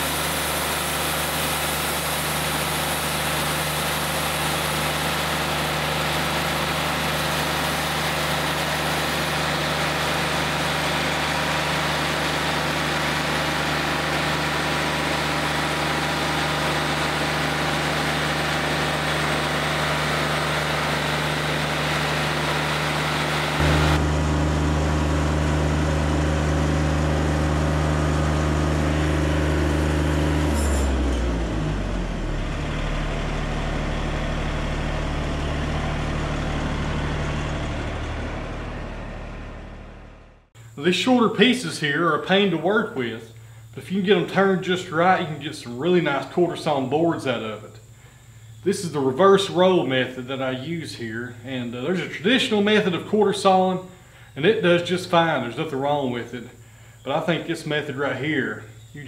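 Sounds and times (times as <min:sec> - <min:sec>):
sawmill engine drone: 0:00.0 - 0:59.0
band saw blade cutting log: 0:29.3 - 0:31.4.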